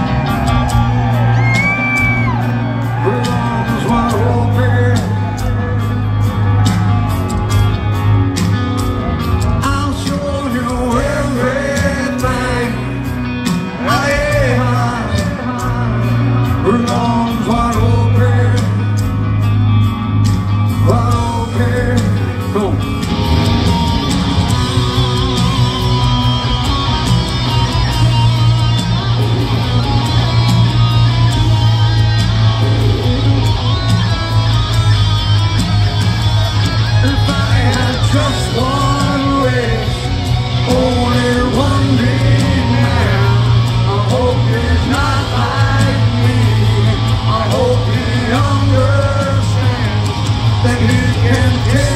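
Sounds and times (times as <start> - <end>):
live rock band: 0.0 - 51.9
man singing: 2.9 - 6.5, 9.5 - 19.2, 20.7 - 23.1, 36.9 - 51.9.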